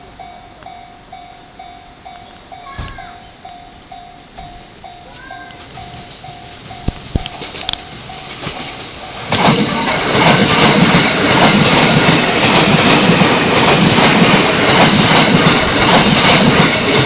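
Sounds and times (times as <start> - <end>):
level-crossing warning bell: 0.0 - 13.3
train wheels rumbling on rail: 0.0 - 17.0
clacking over rail joints: 4.4 - 17.0.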